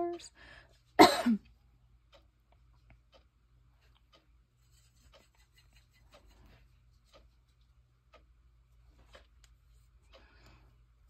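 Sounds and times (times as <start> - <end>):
paintbrush dabbing on paper: 4.6 - 7.8.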